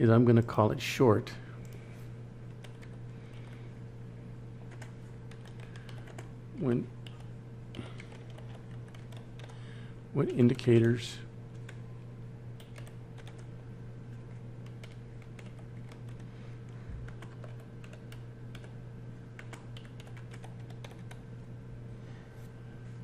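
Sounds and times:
steady low hum: 0:00.0 - 0:23.0
keyboard typing: 0:02.5 - 0:03.0, 0:04.7 - 0:06.3, 0:07.0 - 0:09.6, 0:12.6 - 0:13.5, 0:14.2 - 0:16.3, 0:17.0 - 0:18.8, 0:19.4 - 0:21.3.

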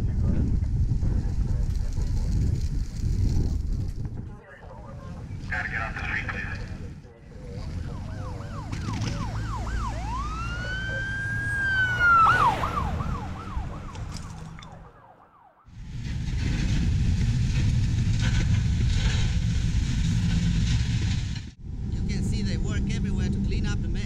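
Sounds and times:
low rumble: 0:00.0 - 0:24.0
wind noise: 0:00.0 - 0:24.0
emergency vehicle siren: 0:07.3 - 0:15.9.

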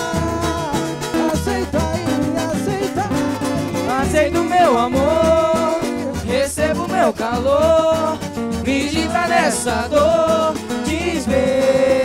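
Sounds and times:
bass: 0:00.0 - 0:12.0
guitar: 0:00.0 - 0:12.0
person singing: 0:00.0 - 0:12.0.

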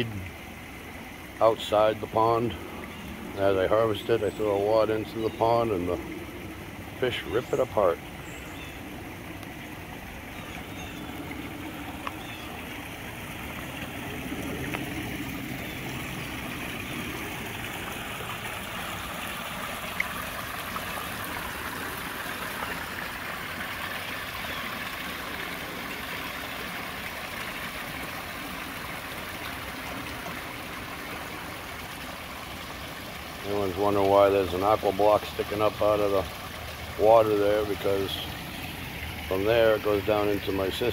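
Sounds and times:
waterfall splashing into stream: 0:09.2 - 0:40.1.

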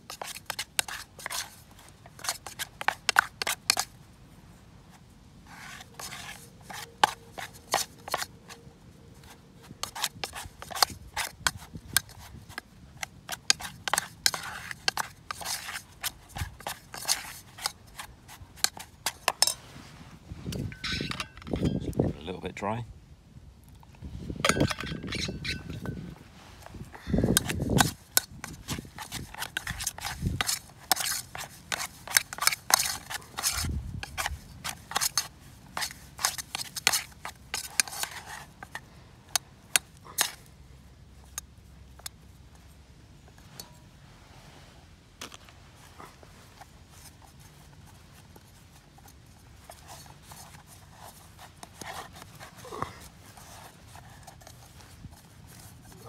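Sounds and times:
spork scraping metal pot: 0:09.7 - 0:19.6, 0:20.5 - 0:22.0, 0:24.5 - 0:26.0, 0:27.2 - 0:38.8.

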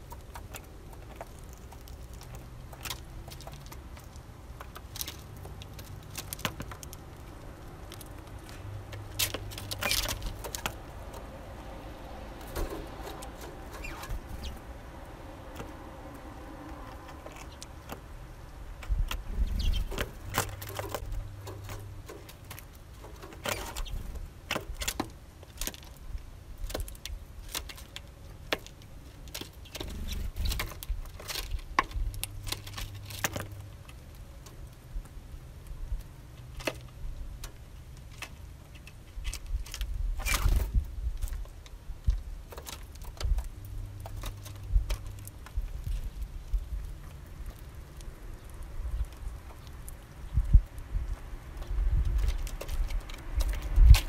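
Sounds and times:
beaks cracking seeds: 0:00.0 - 0:11.7.

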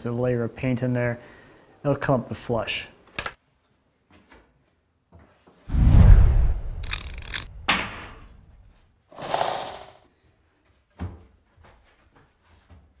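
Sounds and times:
rushing noise: 0:05.7 - 0:07.8.

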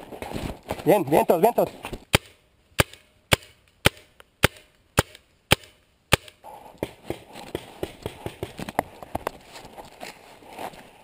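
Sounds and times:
footsteps in dry grass: 0:07.3 - 0:11.0.

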